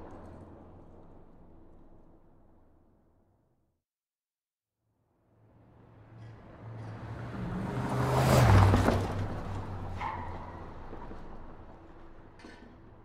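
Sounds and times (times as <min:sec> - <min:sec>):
car passing by: 0:05.4 - 0:12.4.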